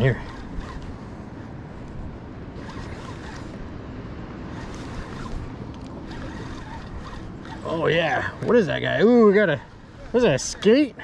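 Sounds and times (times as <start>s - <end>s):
sea noise: 0.0s - 10.8s.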